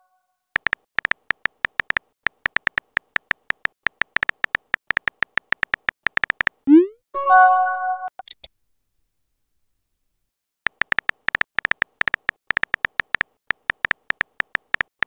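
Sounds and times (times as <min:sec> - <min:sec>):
phone keyboard clicks: 0:00.6 - 0:06.6, 0:10.7 - 0:15.0.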